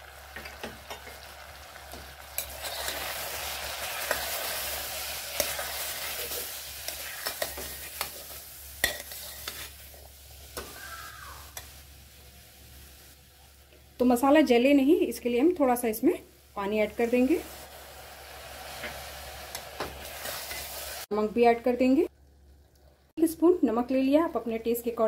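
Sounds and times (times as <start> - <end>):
chickpeas sizzling in oil: 0.0 - 22.0
steel spoon scraping pot: 6.9 - 9.7.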